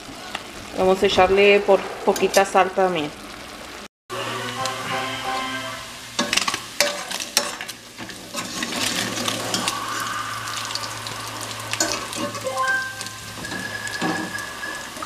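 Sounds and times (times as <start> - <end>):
pork sizzling in a pan: 0.0 - 15.0.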